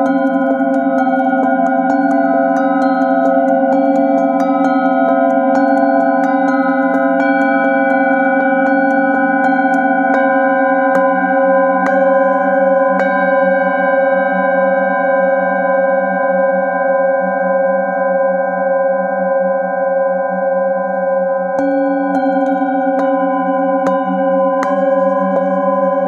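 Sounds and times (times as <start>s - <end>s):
singing bowls struck with mallet: 0.0s - 15.8s, 21.0s - 26.0s.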